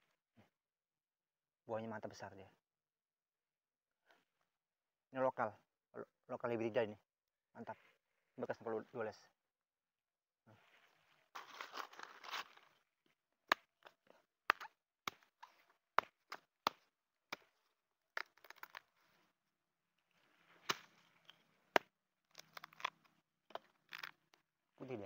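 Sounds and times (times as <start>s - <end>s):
crunching and rustling: 10.7s - 12.8s, 22.3s - 24.4s
machete chopping into pod husk: 20.6s - 21.1s.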